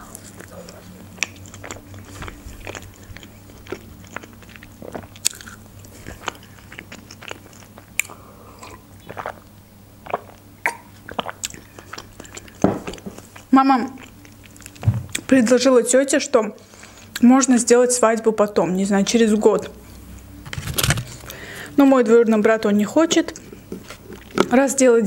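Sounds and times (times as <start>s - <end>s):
chewing crunches: 0.0s - 15.3s, 23.4s - 24.6s
wet mouth clicks: 6.2s - 13.0s.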